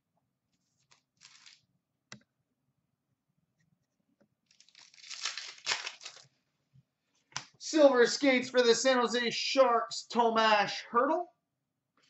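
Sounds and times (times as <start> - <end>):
foil wrapper tearing and crinkling: 1.2 - 1.6, 4.5 - 6.3.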